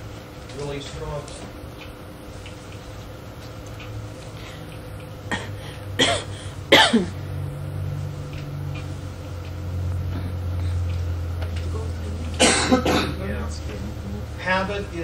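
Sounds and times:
cassette hum and hiss: 0.0 - 15.0
person coughing: 5.3 - 7.2, 12.4 - 13.2.

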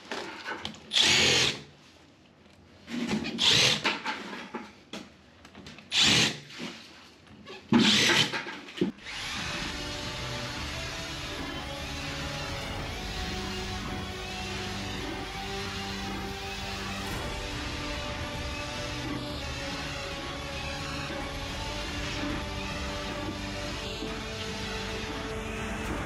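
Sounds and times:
cordless drill boring into floor: 5.9 - 6.6, 7.8 - 8.4, 9.0 - 17.6
background music: 9.0 - 26.0.

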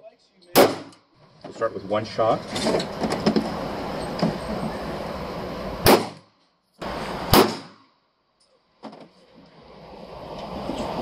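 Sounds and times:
pistol shots echoing: 0.6 - 1.0, 5.8 - 6.2, 7.3 - 7.8.

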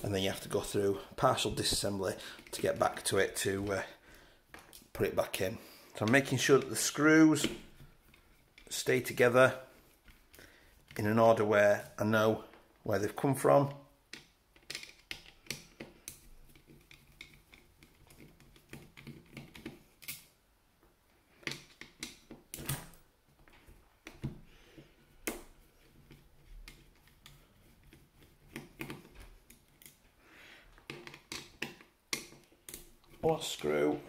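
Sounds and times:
screwdriver clicks and taps: 30.8 - 33.2.

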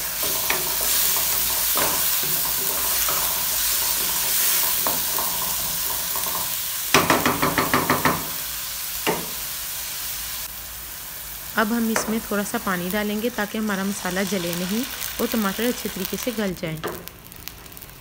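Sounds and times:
vegetables sizzling in hot oil: 0.0 - 18.0
spatula knocking on pan: 0.2 - 8.4, 9.1 - 9.4.

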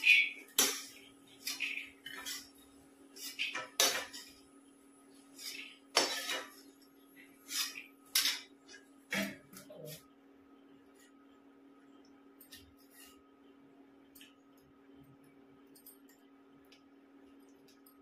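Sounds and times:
metal spatula scraping a wok: 0.0 - 4.5, 5.2 - 8.5.

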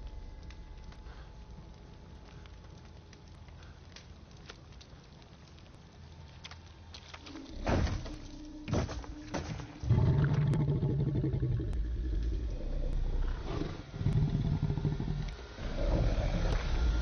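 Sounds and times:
deep rough creature growls: 9.8 - 17.0.

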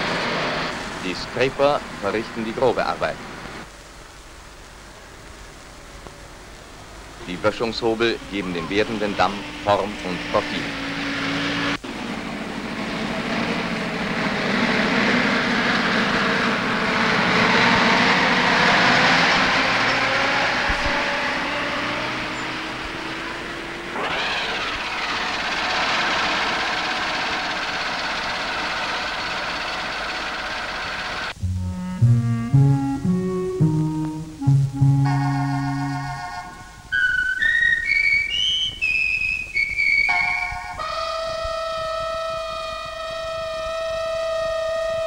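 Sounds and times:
diesel engines of heavy machinery: 0.0 - 3.7, 6.2 - 31.4, 39.8 - 45.0.

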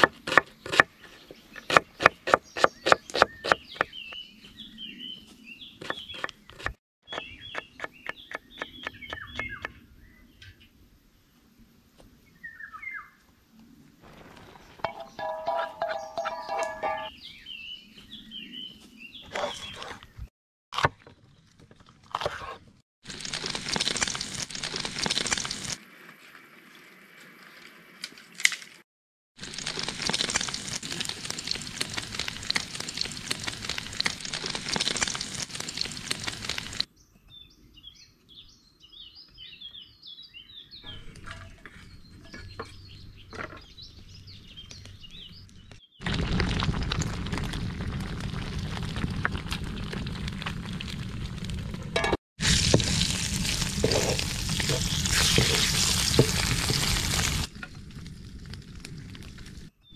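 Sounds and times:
birds chirping: 0.5 - 10.7, 14.0 - 20.3, 36.9 - 46.0
cracking and crunching: 23.1 - 25.8, 29.4 - 36.9, 46.0 - 59.7.

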